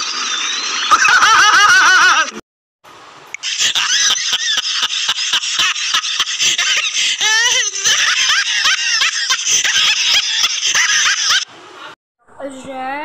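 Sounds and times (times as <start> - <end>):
high-pitched laughter: 0.9 - 2.4, 3.4 - 11.5.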